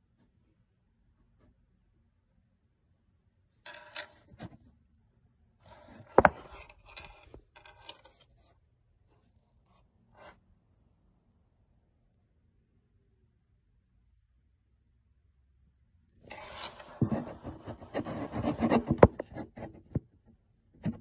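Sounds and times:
phone rubbing against microphone: 5.7 - 8.4, 16.3 - 20.0.

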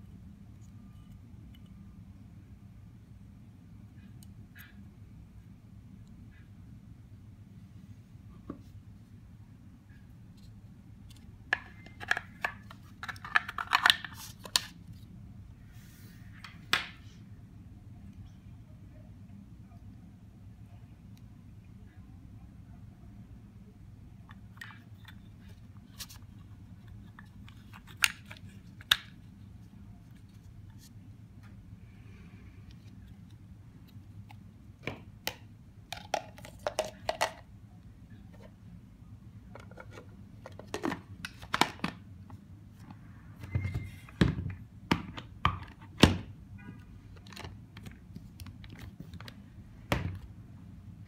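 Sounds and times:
plastic parts clicking and knocking: 11.1 - 14.6.

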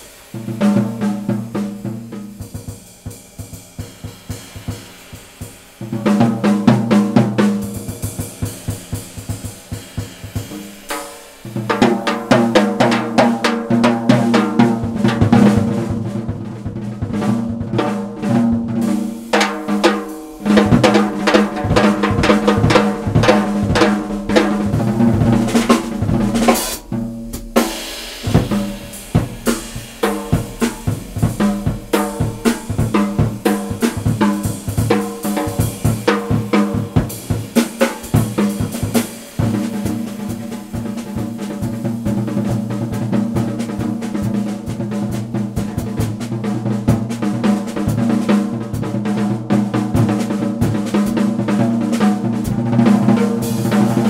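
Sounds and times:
cymbal crash: 0.0 - 15.8, 17.9 - 43.4, 52.4 - 54.0
jazz drum solo: 0.0 - 54.0.

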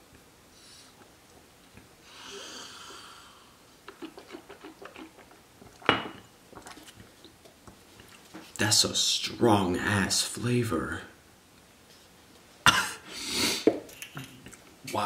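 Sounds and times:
wet mouth clicks chewing: 3.8 - 5.9.

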